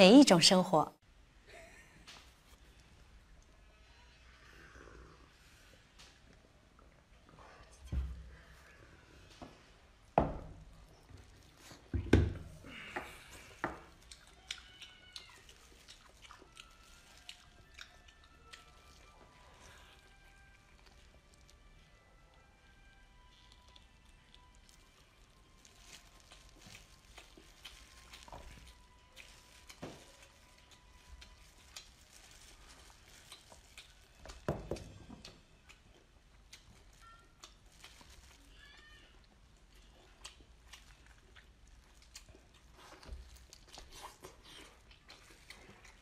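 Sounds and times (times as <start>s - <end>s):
chewing with wet smacks: 10.7s - 21.7s, 23.1s - 46.0s.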